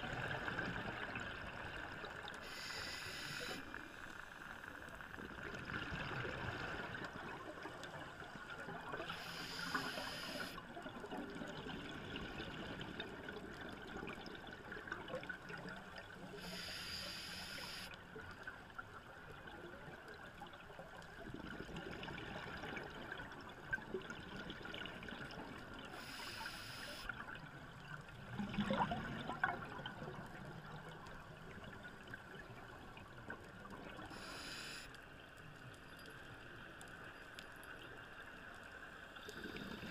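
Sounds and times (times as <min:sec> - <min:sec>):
hissing regulator inhales: 0:02.4 - 0:03.8, 0:09.1 - 0:10.6, 0:16.4 - 0:17.9, 0:26.0 - 0:27.1, 0:34.1 - 0:35.0
exhaled bubbles gurgling: 0:27.2 - 0:34.3.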